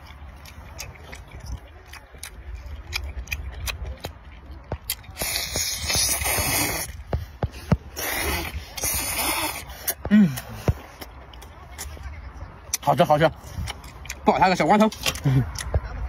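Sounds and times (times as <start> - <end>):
wet mouth clicks: 0.4 - 4.2, 4.8 - 7.0
wet hissing slurps: 5.1 - 7.0, 8.0 - 10.0.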